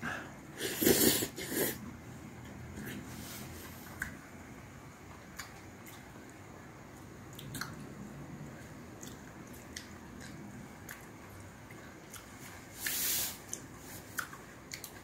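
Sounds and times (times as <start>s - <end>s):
person chewing: 5.1s - 6.2s, 6.9s - 8.0s, 8.6s - 15.0s
short hissing sound: 12.8s - 13.4s.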